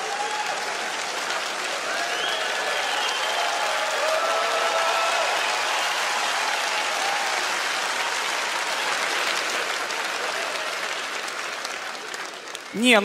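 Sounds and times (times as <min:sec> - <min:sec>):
studio audience applauding: 0:00.0 - 0:13.0.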